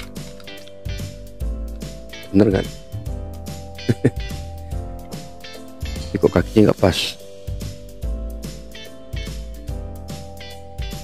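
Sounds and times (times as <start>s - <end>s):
steady bass line: 0.0s - 11.0s
plucked guitar notes: 2.0s - 3.0s, 3.7s - 6.7s, 8.6s - 9.6s.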